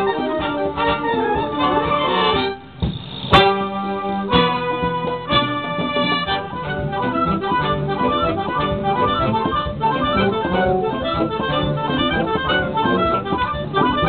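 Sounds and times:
concert band playing: 0.0s - 14.0s.

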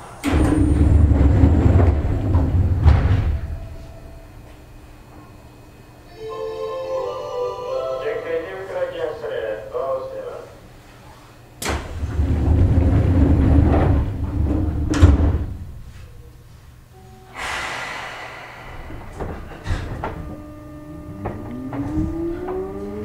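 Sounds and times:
sliding doors knocking shut: 0.2s - 3.9s, 11.6s - 15.9s, 18.9s - 23.0s
air hiss: 17.3s - 19.9s
traction motor whine: 18.3s - 23.0s
steady high electronic tone: 20.1s - 23.0s.

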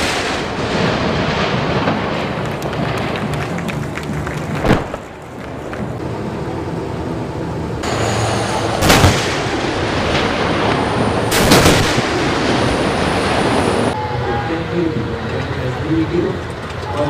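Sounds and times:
armoured vehicle engines rumbling: 0.0s - 17.0s
tank gun blasts: 8.8s - 13.6s.

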